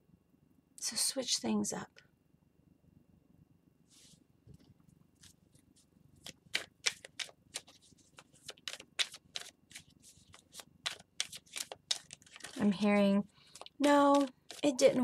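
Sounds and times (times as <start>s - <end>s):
cards being shuffled: 6.2s - 15.0s.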